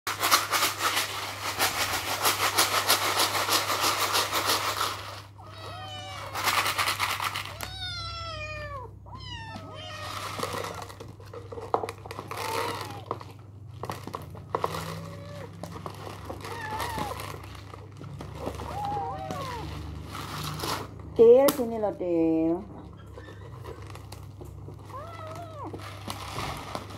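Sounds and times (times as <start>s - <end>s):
crinkling plastic: 0.1s - 8.4s, 9.2s - 21.9s, 23.2s - 26.9s
kittens mewing: 5.3s - 11.1s, 12.1s - 13.4s, 14.7s - 17.5s, 18.3s - 20.0s, 22.8s - 26.2s.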